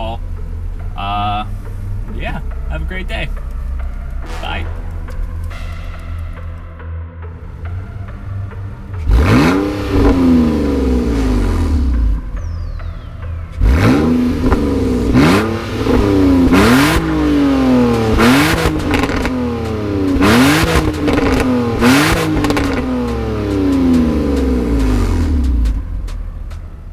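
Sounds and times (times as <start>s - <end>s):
car engine revving: 0.0s - 26.9s
exhaust blast: 7.3s - 12.5s, 13.6s - 26.4s.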